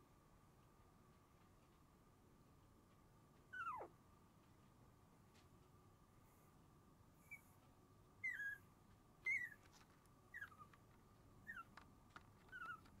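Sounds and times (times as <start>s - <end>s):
puppy whimpering: 3.5s - 3.9s, 7.2s - 7.5s, 8.2s - 8.6s, 9.2s - 10.8s, 11.4s - 11.8s, 12.4s - 13.0s.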